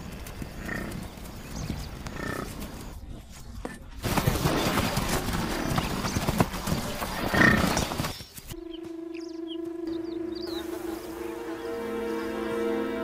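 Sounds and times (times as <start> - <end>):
small birds chirping: 0.0 - 12.7
rough animal noise: 0.4 - 8.2
soft sustained music tones: 8.5 - 13.0.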